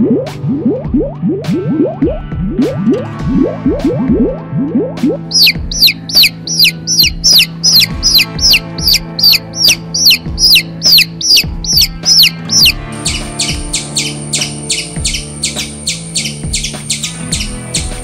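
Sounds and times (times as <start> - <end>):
background music: 0.0 - 18.0
sharp high ticks: 5.0 - 18.0
baby chicks peeping: 5.3 - 18.0.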